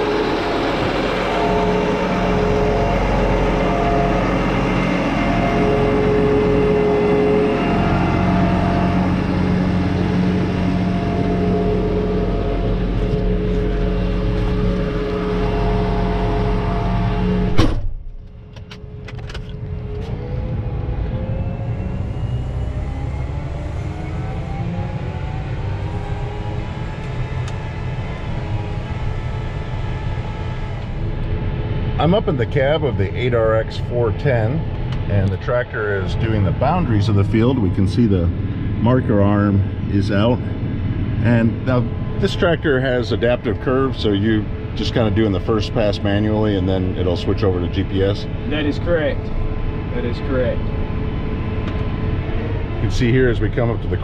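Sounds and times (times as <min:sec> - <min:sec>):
tractor diesel engine running: 0:00.0 - 0:54.0
sharp knock: 0:17.5 - 0:18.0.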